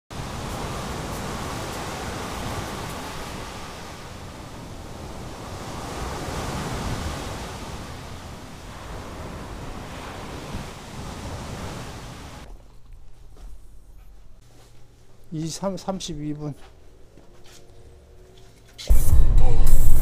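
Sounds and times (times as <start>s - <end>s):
surf breaking on pebble beach: 0.2s - 12.5s.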